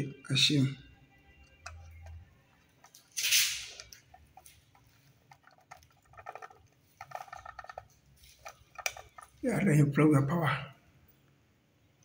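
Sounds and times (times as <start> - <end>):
connector clicking and scraping on metal: 1.4 - 9.4.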